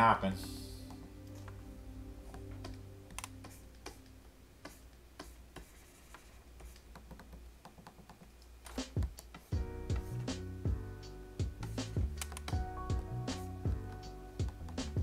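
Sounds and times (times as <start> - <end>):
keyboard and stylus clicks: 12.2 - 12.6.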